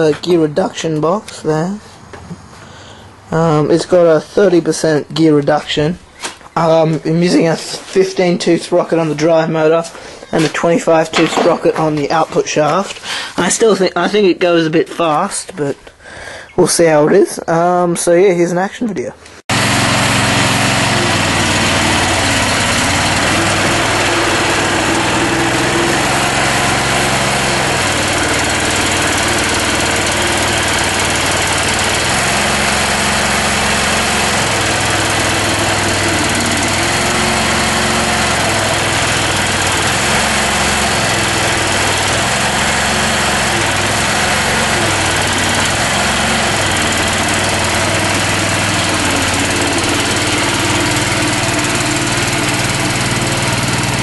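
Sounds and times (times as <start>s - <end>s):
small tractor engine running: 19.5s - 54.0s.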